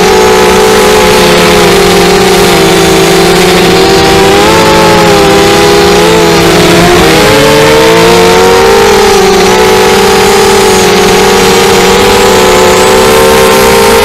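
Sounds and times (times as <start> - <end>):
quadcopter motors whining: 0.0 - 14.0.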